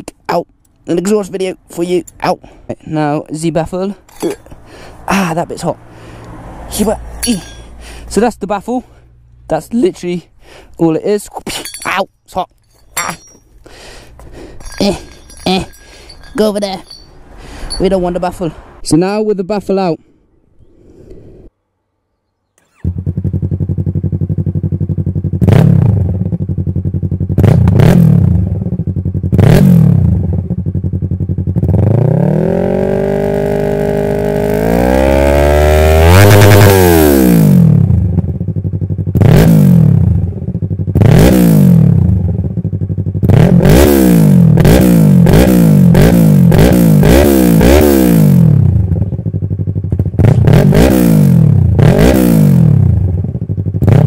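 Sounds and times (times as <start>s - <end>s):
motorcycle engine revving: 12.7s - 18.1s, 22.6s - 54.0s.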